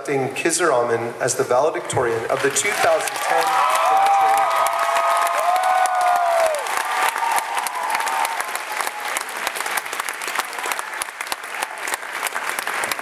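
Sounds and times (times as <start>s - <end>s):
audience applauding: 2.3s - 13.0s
audience cheering: 2.4s - 13.0s.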